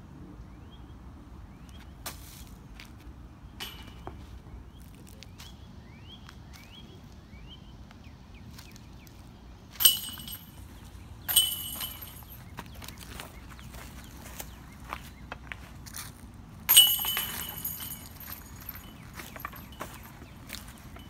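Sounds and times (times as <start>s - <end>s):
discs clanking chain basket: 9.8s - 12.5s, 16.7s - 21.0s.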